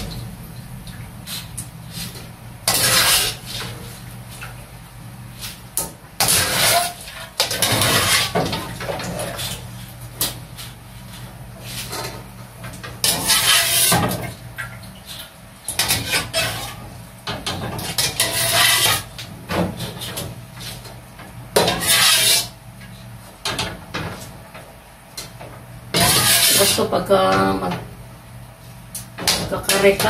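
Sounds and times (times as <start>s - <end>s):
steady low hum: 0.0s - 30.0s
wire strainer scraping a wok: 1.3s - 3.9s, 6.2s - 8.4s, 13.0s - 14.1s, 15.8s - 16.9s, 17.8s - 19.1s, 21.6s - 22.6s, 26.0s - 27.0s.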